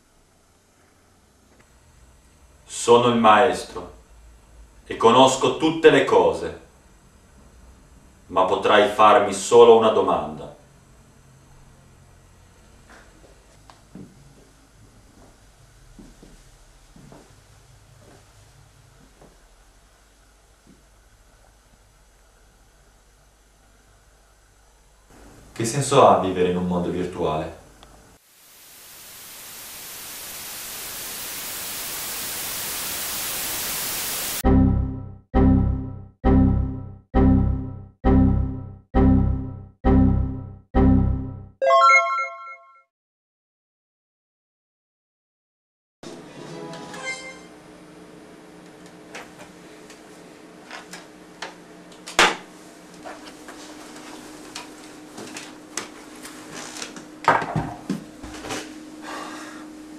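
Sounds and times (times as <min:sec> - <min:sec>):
static hiss: 0:28.1 - 0:34.4
buzzing electronic alarm tone: 0:28.7 - 0:42.8.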